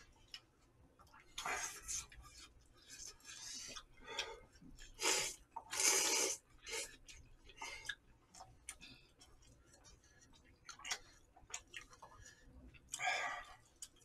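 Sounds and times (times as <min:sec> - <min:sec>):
chewing: 0:00.0 - 0:14.0
noodles being slurped: 0:04.8 - 0:07.1.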